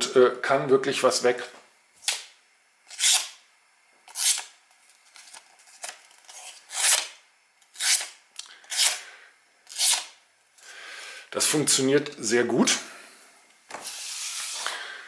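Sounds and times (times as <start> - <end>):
knife slicing paper: 5.8 - 7.1, 7.7 - 9.0, 9.7 - 10.1.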